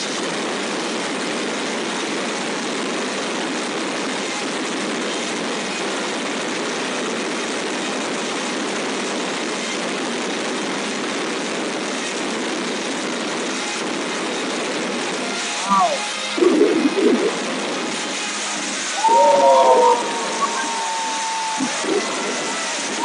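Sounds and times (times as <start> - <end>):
fireworks crackling: 10.5 - 23.0.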